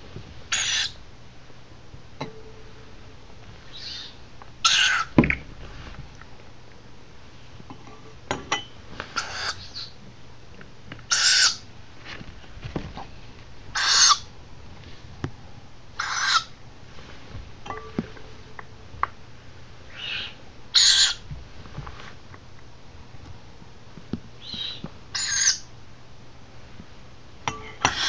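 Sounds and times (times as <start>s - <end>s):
owlet hissing calls: 0.5s - 1.0s, 3.7s - 5.2s, 9.2s - 9.9s, 11.1s - 11.6s, 13.7s - 14.2s, 16.0s - 16.5s, 19.9s - 21.2s, 24.4s - 25.7s.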